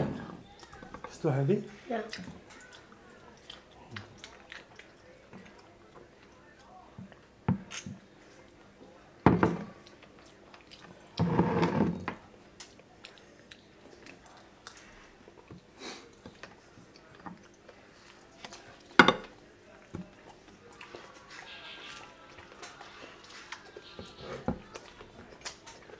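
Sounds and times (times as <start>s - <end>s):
cutlery scraping on plates: 23.4s - 24.7s.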